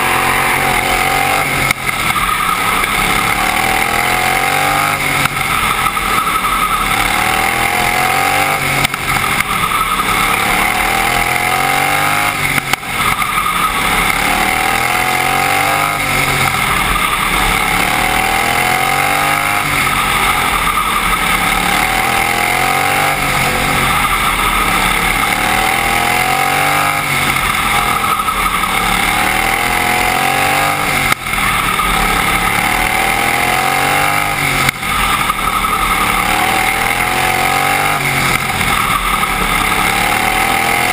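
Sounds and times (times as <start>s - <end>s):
racing lawnmower engine revving: 0.0s - 40.9s.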